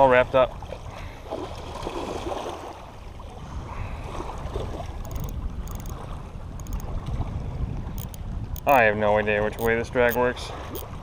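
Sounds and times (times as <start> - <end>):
wind buffeting microphone: 0.0 - 11.0
fishing reel drag buzzing: 5.0 - 6.0, 6.6 - 6.8, 8.0 - 8.8.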